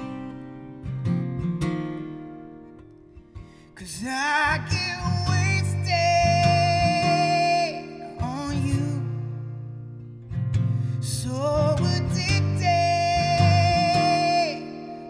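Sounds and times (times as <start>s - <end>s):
acoustic guitar chords: 0.0s - 15.0s
man singing: 3.8s - 9.6s, 11.0s - 15.0s.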